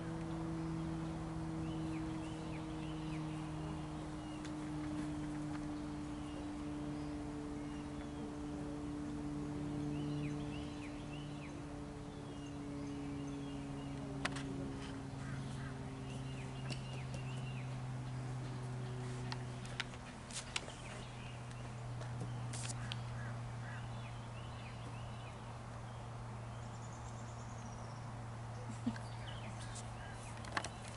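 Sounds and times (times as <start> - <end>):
bird chirping: 0.0 - 19.9, 20.5 - 30.9
low mechanical hum: 0.0 - 30.9.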